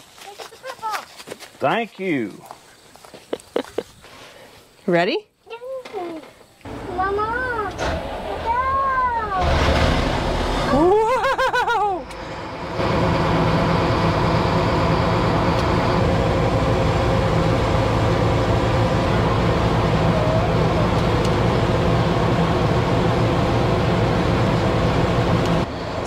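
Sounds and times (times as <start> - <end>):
combine harvester engine drone: 6.6 - 26.0.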